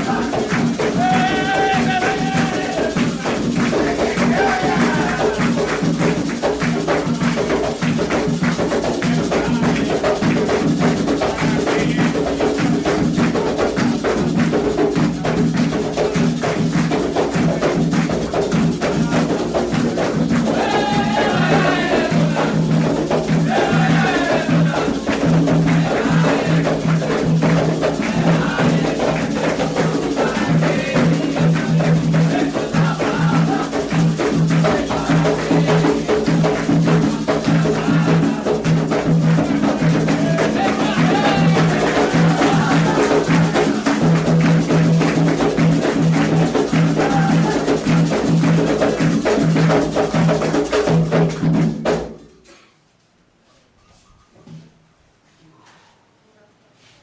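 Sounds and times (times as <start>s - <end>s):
voices singing: 0.0s - 6.3s, 8.8s - 12.5s, 18.7s - 49.4s
hand drums playing: 0.0s - 52.3s.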